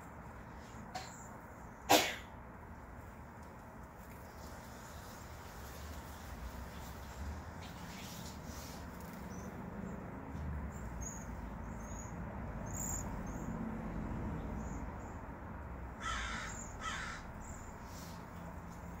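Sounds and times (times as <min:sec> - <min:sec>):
birds giving high-pitched calls: 0:10.7 - 0:13.5, 0:16.0 - 0:18.3
loud harsh bird calls: 0:15.9 - 0:18.3.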